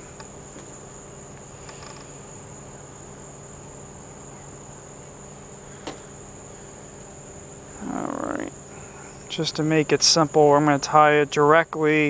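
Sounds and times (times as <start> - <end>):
crickets trilling: 0.0 - 12.0
faint low hum: 0.0 - 12.0.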